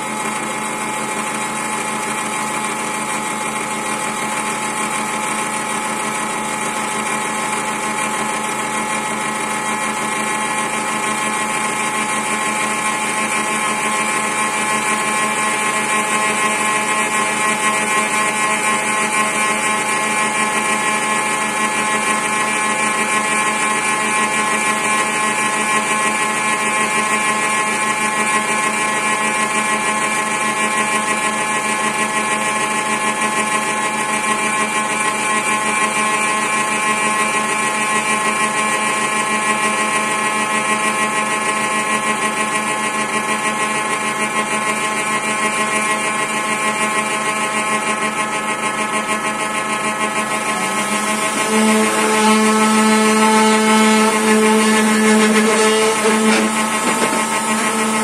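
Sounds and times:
milling spindle cutting wood: 50.2s - 58.0s.

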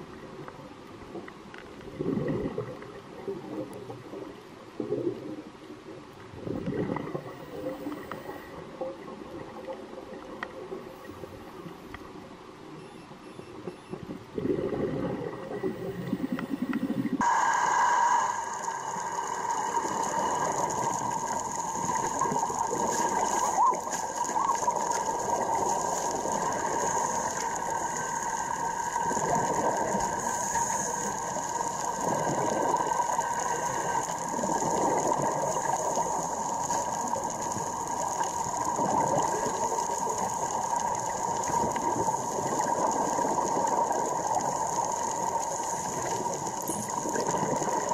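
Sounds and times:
dense underwater crackling: 0.0s - 47.9s
steady high whine: 15.2s - 34.4s.

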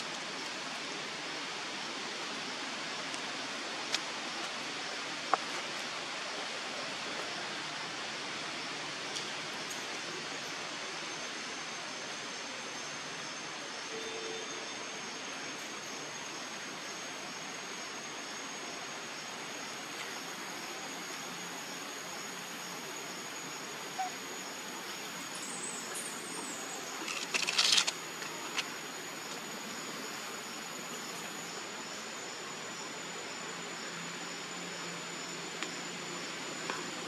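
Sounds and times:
high-pitched whine: 0.0s - 37.0s
steady outdoor hiss: 0.0s - 37.0s.

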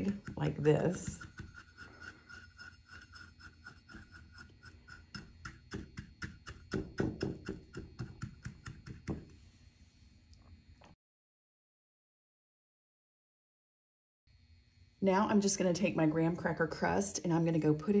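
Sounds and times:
metal cup tapping and scraping: 0.0s - 9.3s.

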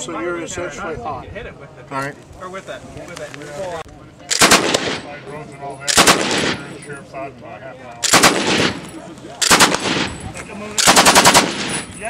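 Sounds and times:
automatic rifle firing bursts: 4.3s - 5.1s, 5.9s - 6.7s, 8.0s - 10.2s, 10.8s - 11.9s.

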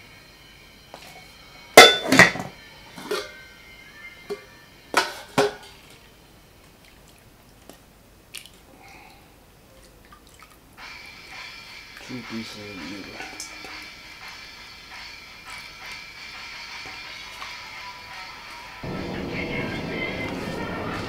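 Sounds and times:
cookware clanking on steel bowl: 1.8s - 3.4s, 5.0s - 5.8s.

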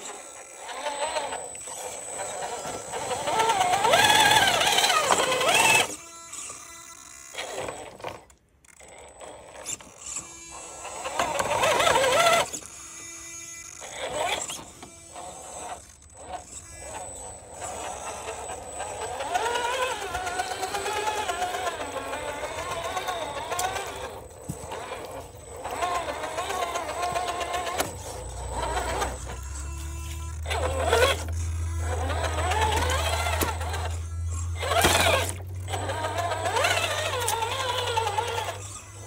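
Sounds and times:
electric motor whining: 0.0s - 39.0s.

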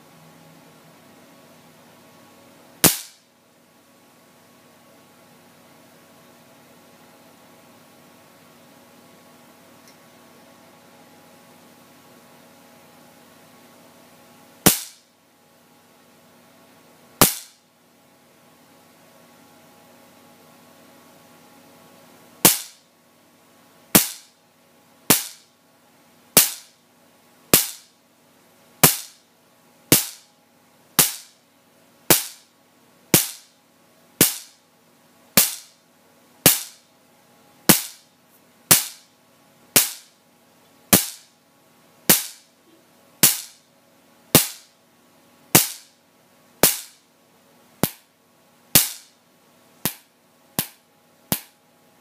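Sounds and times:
faint steady hum: 0.0s - 52.0s
electric spark cracks: 2.8s - 3.3s, 14.6s - 15.1s, 17.2s - 17.6s, 22.4s - 22.8s, 24.0s - 24.4s, 25.1s - 25.5s, 26.4s - 26.8s, 27.5s - 28.0s, 28.8s - 29.2s, 29.9s - 30.3s, 31.0s - 31.4s, 32.1s - 32.5s, 33.1s - 33.5s, 34.2s - 34.6s, 35.4s - 35.8s, 36.4s - 36.8s, 37.7s - 38.1s, 38.7s - 39.1s, 39.8s - 40.2s, 40.9s - 41.3s, 42.1s - 42.5s, 43.2s - 43.6s, 44.3s - 44.7s, 45.5s - 46.0s, 46.6s - 47.0s, 48.7s - 49.2s.

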